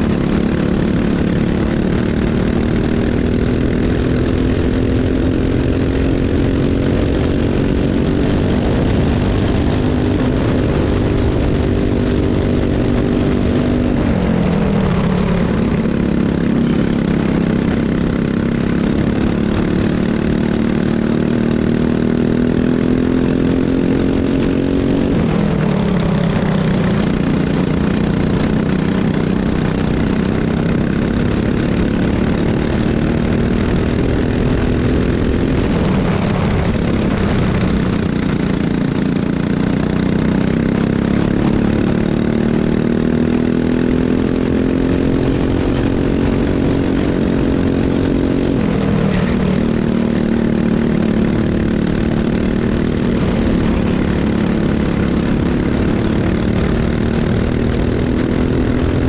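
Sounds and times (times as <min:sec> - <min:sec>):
racing kart engine: 0:00.0 - 0:59.0.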